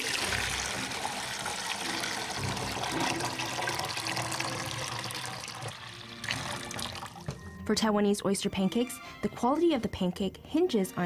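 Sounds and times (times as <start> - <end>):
thick batter pouring: 0.0 - 7.3.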